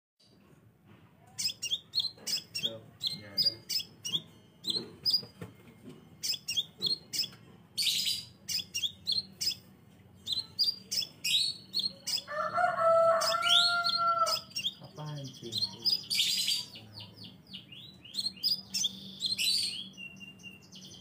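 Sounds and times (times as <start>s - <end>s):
bird high chirps: 1.3s - 5.5s, 6.1s - 21.0s
rasping bird call: 12.1s - 14.7s.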